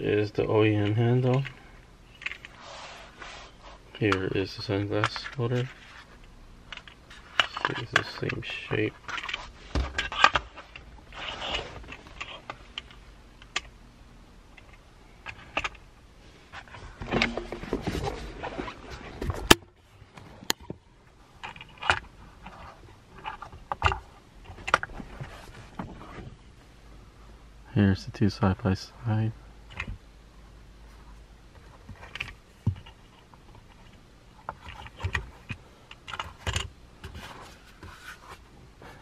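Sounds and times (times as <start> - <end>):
rustling: 16.2 - 20.4.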